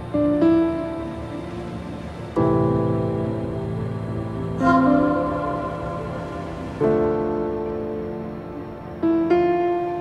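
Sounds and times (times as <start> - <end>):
sustained music chord: 2.0 - 9.0.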